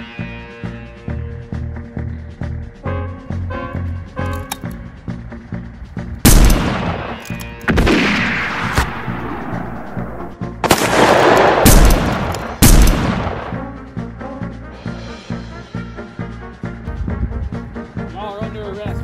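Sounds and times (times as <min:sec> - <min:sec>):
background music: 0:00.0 - 0:19.0
gunshots with echo: 0:06.3 - 0:13.7.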